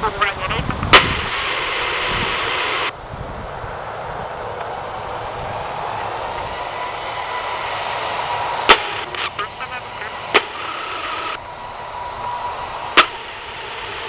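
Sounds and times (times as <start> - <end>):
jet engines running: 0.0 - 14.0
burst of hiss: 0.9 - 2.9, 7.6 - 14.0.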